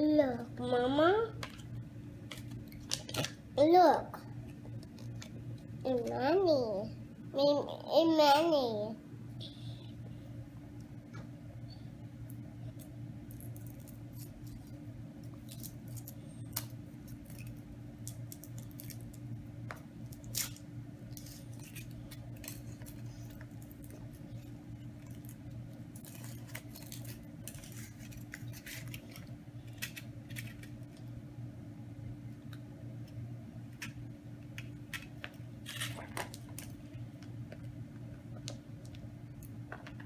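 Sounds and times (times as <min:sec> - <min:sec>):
steady low hum: 0:00.0 - 0:40.0
foil wrapper crinkling: 0:01.4 - 0:03.4, 0:13.3 - 0:19.2, 0:20.1 - 0:31.0, 0:34.9 - 0:36.8.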